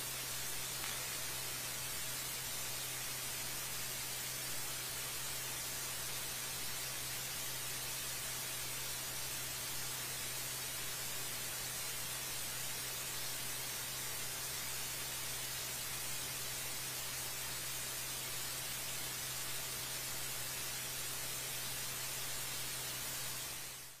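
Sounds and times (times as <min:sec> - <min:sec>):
static hiss: 0:00.0 - 0:24.0.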